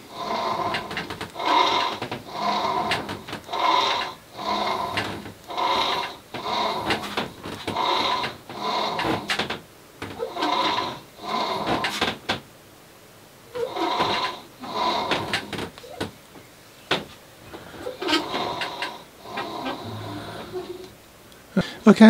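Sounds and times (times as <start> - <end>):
rope squeaking through pulley: 17.8 - 20.9.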